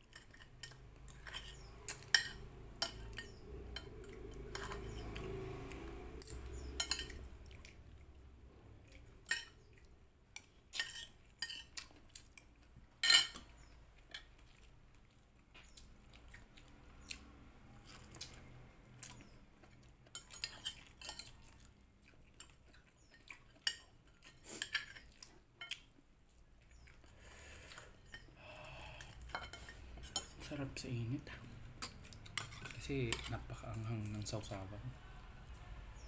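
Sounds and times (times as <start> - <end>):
cutlery clinking on a plate: 0.1 - 3.9, 6.2 - 7.3, 10.7 - 11.8, 13.0 - 14.3, 29.2 - 30.5.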